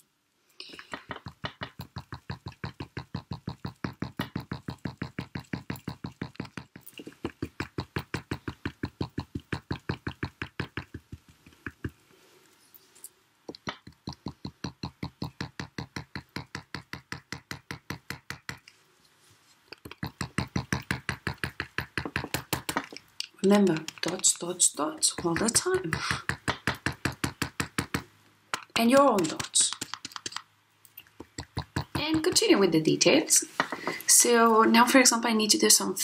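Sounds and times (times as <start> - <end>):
painting tool tapping on paper: 0.7 - 12.0, 13.5 - 18.7, 19.8 - 23.0, 23.7 - 24.3, 25.0 - 30.5, 31.2 - 32.6.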